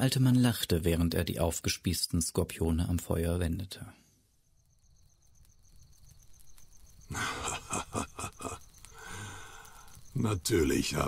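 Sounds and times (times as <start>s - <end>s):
crickets chirping: 4.0s - 11.0s
old man laughing: 7.1s - 8.7s.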